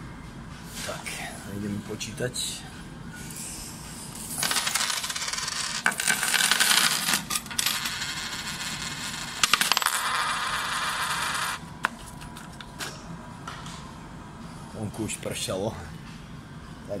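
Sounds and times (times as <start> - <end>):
coins clinking on wooden counter: 4.4 - 12.6.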